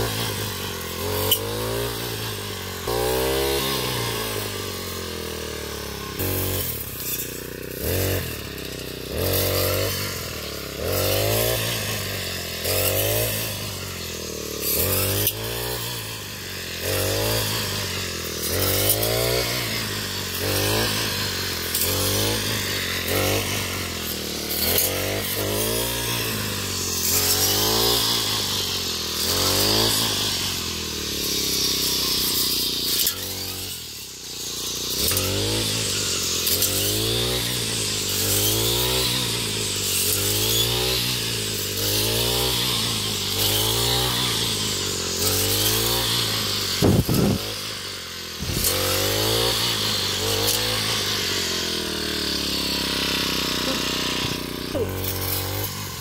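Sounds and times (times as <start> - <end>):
brush cutter engine revving: 0.0 - 56.0
blade swishing through stalks: 10.9 - 47.8, 48.4 - 56.0.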